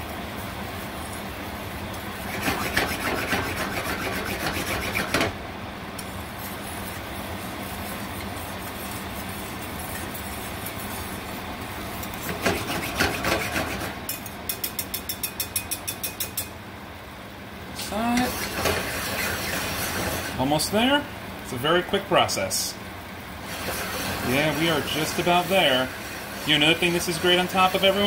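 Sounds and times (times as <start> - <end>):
rhythmic whisk strokes on pan: 0.0 - 5.2, 6.0 - 16.5, 18.3 - 20.6, 23.4 - 28.0
whisk scraping metal skillet: 2.2 - 5.2, 6.0 - 14.0, 18.3 - 20.4, 23.4 - 28.0.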